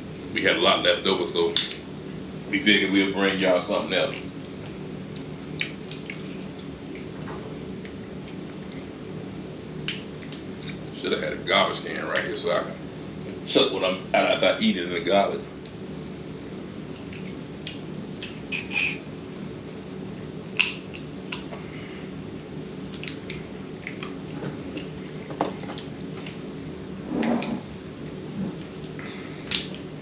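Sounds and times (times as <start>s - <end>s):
steady low hum: 0.0s - 30.0s
wet eating sounds: 4.2s - 8.9s, 22.4s - 26.4s.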